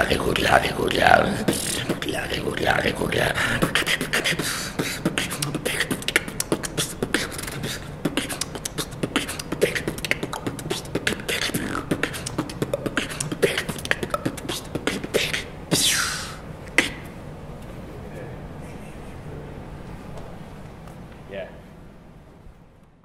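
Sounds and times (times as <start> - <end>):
person beatboxing: 0.0 - 17.1.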